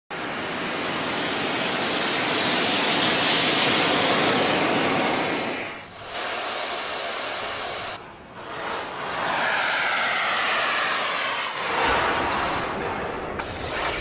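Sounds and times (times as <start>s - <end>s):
steam hissing: 0.9s - 8.0s, 9.2s - 11.8s.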